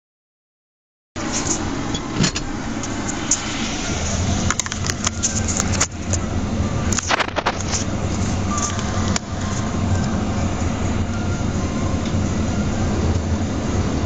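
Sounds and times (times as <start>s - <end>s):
diesel engine running: 1.2s - 14.0s.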